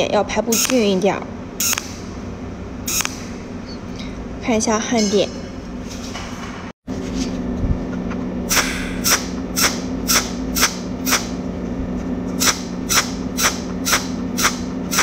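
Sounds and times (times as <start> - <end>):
steady low hum: 0.0 - 15.0
welding arc zaps: 1.6 - 2.2, 2.9 - 3.6, 8.5 - 11.4, 12.4 - 15.0.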